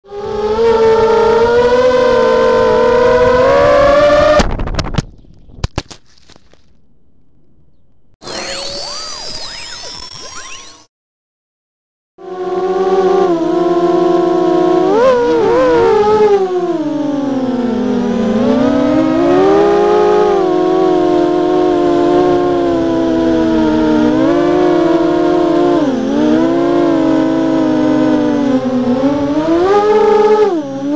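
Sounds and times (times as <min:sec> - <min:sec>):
drone motors whining: 0:08.2 - 0:10.9, 0:14.9 - 0:30.9.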